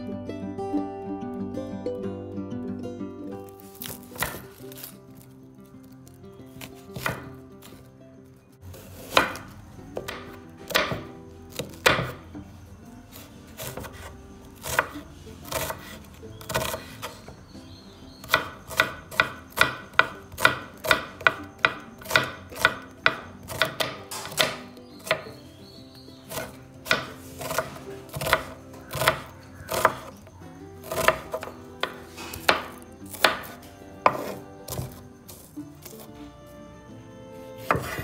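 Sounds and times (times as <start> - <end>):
cleaver chopping on wooden board: 3.8 - 4.8, 6.6 - 7.8, 8.9 - 12.2, 13.6 - 17.1, 18.2 - 25.4, 26.3 - 30.2, 30.8 - 36.0, 37.6 - 38.0.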